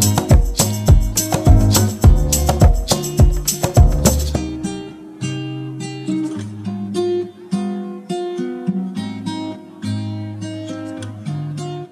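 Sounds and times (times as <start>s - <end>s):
low bass notes: 0.0s - 4.6s
acoustic guitar chords: 0.0s - 11.9s.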